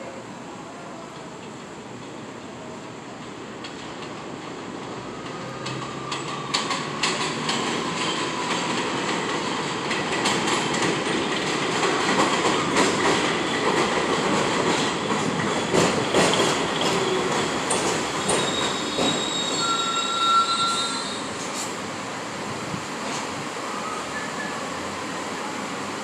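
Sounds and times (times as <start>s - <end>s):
train rumbling: 0.0s - 26.0s
wheels clacking over rail joints: 3.2s - 20.0s
brake squeal: 18.3s - 21.7s.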